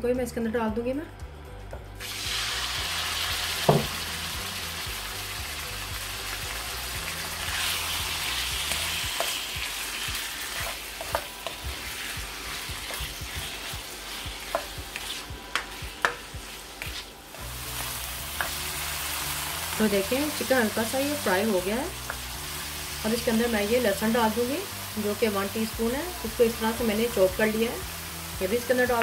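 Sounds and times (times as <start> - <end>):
chicken sizzling in hot oil: 2.0 - 29.0
loud thump: 3.6 - 3.9
spatula tapping and scraping pan: 10.6 - 11.8, 12.8 - 17.1, 18.4 - 18.6.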